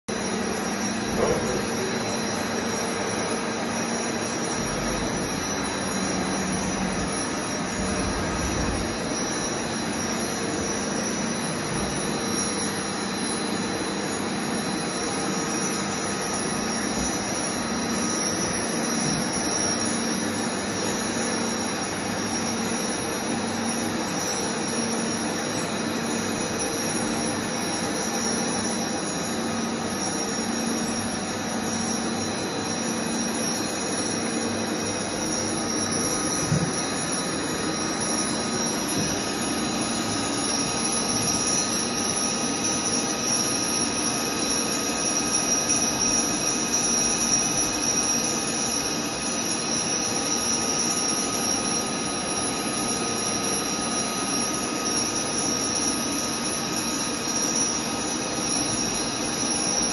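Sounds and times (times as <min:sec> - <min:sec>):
milling machine whining: 0:00.1 - 0:59.9.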